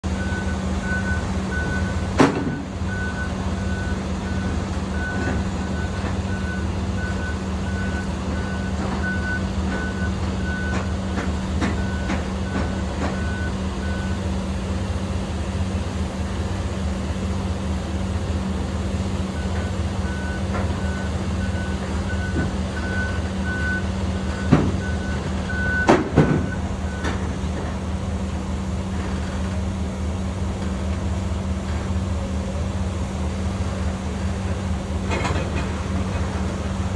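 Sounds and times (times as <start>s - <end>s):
idling engine hum: 0.0s - 36.9s
reversing alarm beeping: 0.1s - 11.0s, 11.6s - 14.3s, 19.3s - 27.3s.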